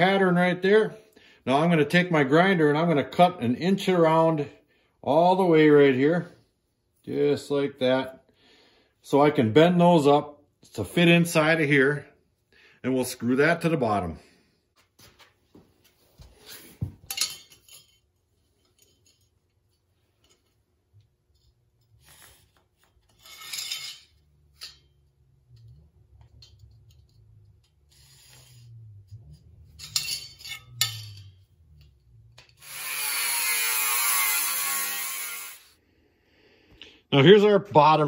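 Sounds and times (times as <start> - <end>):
scraping and handling sounds: 14.7 - 32.6
angle grinder cutting sheet metal: 32.4 - 35.8.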